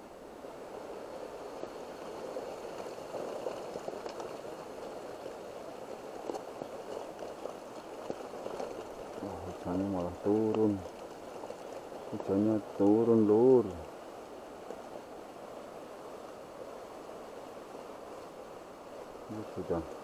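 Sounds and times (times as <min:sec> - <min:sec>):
heavy rain falling: 0:00.0 - 0:20.0
raindrop taps: 0:06.2 - 0:13.9.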